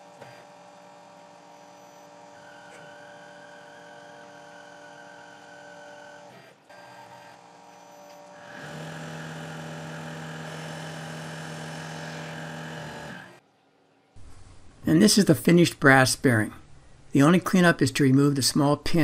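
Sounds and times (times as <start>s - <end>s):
lathe machine whine: 7.1s - 13.4s.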